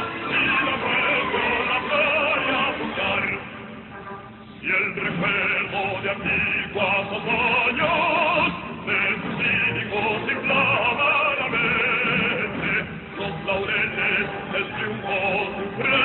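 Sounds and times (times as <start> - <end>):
musical accompaniment: 0.0 - 16.0
operatic hymn singing: 0.0 - 16.0.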